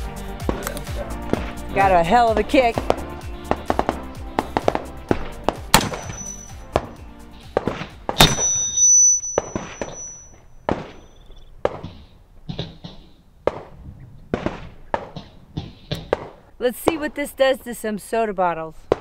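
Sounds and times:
background music with steady beat: 0:00.0 - 0:08.8
revolver gunshots: 0:02.8 - 0:17.1
high ringing tone: 0:05.8 - 0:06.7, 0:08.2 - 0:11.5.

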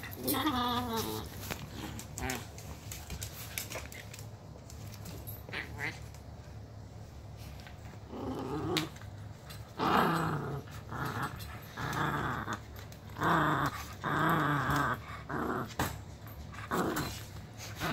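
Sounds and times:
small dog growling in play: 0:00.0 - 0:02.5, 0:08.0 - 0:17.9.

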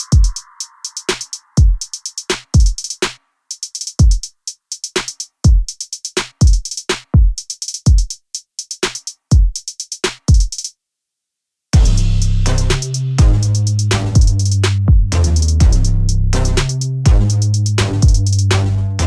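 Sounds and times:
drum machine beat: 0:00.0 - 0:10.7, 0:11.8 - 0:19.0
fast hi-hats: 0:00.0 - 0:10.7, 0:11.8 - 0:19.0
sliding bass hits: 0:11.8 - 0:19.0.

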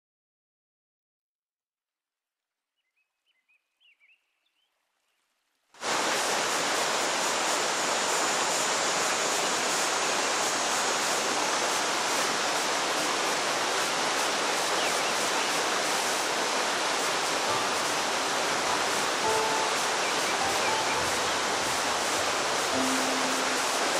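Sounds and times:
river rapids rushing: 0:05.8 - 0:23.9.

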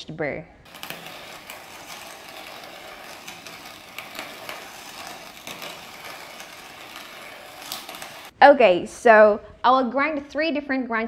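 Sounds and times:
coffee grinder crunching beans: 0:00.7 - 0:08.3.

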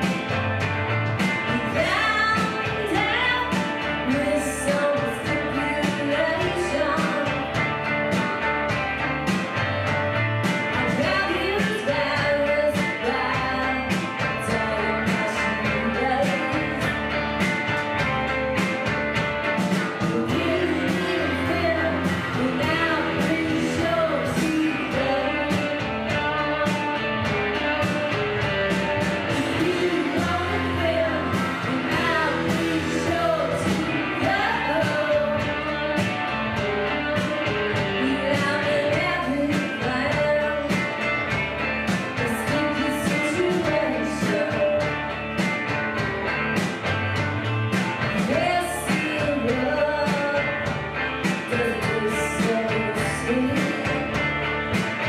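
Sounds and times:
electric guitars: 0:00.0 - 0:55.0
steady drum beat: 0:00.0 - 0:55.0
woman singing: 0:01.4 - 0:07.7, 0:10.6 - 0:17.2, 0:19.9 - 0:27.9, 0:29.2 - 0:41.2, 0:42.0 - 0:45.1, 0:48.0 - 0:54.3.

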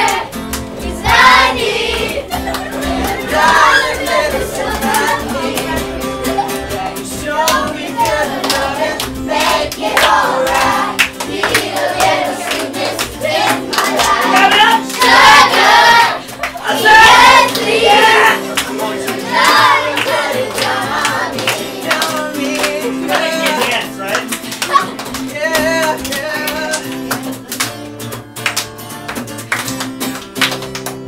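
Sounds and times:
children singing: 0:00.0 - 0:23.9
hand clapping: 0:00.0 - 0:31.0
strummed acoustic guitar: 0:00.0 - 0:31.0.

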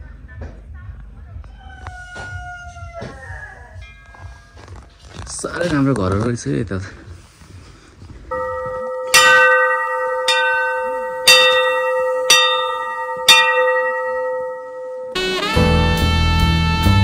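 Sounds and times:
music: 0:00.0 - 0:03.0, 0:15.2 - 0:17.0
metal temple bell struck: 0:08.3 - 0:15.3.

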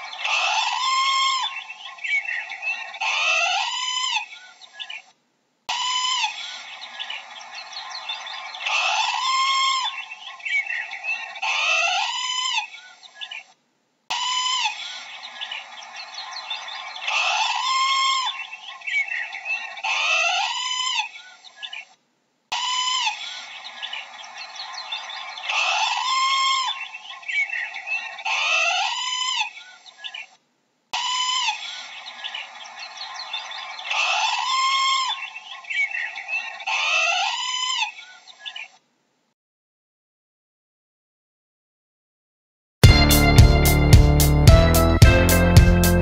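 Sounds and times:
chatter of bird chirps: 0:00.0 - 0:05.1, 0:05.7 - 0:13.5, 0:14.1 - 0:21.9, 0:22.5 - 0:30.4, 0:31.0 - 0:38.8
parrots calling: 0:00.0 - 0:05.1, 0:05.7 - 0:13.5, 0:14.1 - 0:21.9, 0:22.5 - 0:30.4, 0:31.0 - 0:38.8.

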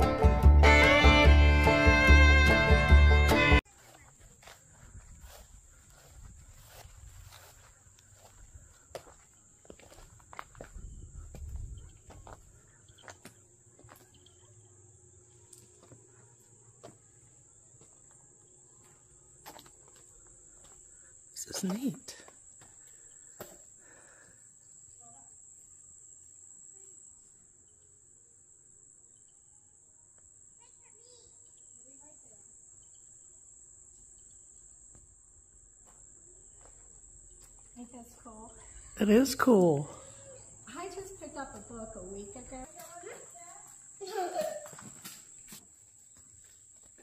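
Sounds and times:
footsteps crunching on gravel: 0:03.6 - 0:14.1, 0:18.8 - 0:20.9, 0:41.5 - 0:47.0
insect chorus drone: 0:03.8 - 0:47.0.

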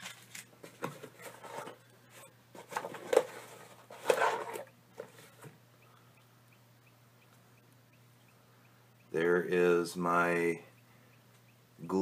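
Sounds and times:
cardboard packing rustling: 0:00.0 - 0:05.4.

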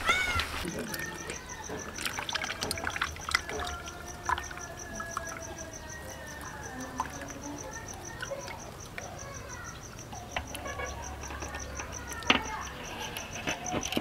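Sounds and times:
insect chirping: 0:00.0 - 0:14.0.

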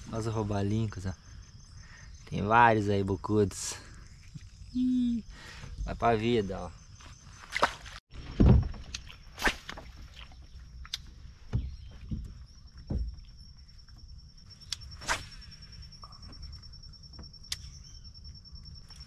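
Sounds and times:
dull knocks and thumps: 0:08.2 - 0:09.0, 0:11.4 - 0:13.4.

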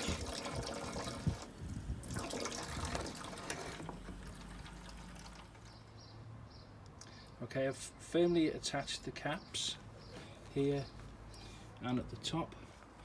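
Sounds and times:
water from hose filling container: 0:00.0 - 0:05.8.

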